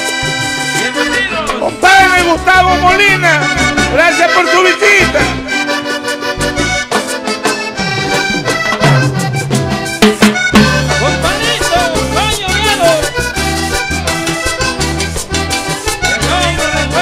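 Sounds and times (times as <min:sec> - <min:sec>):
bass: 0:00.0 - 0:17.0
button accordion: 0:00.0 - 0:17.0
drum: 0:06.9 - 0:13.3.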